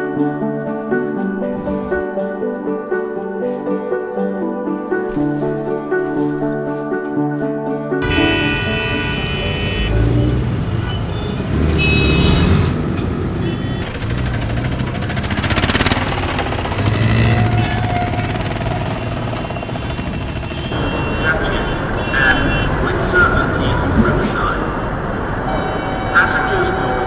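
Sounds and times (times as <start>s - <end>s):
music: 0.0s - 11.4s, 25.4s - 27.0s
road traffic noise: 8.0s - 27.0s.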